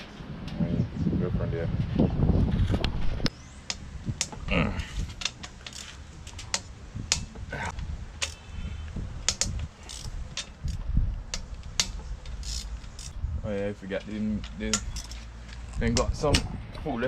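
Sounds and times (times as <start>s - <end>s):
metal tools clicking and knocking: 5.2s - 7.5s, 8.2s - 8.5s, 9.2s - 13.2s, 13.9s - 16.5s.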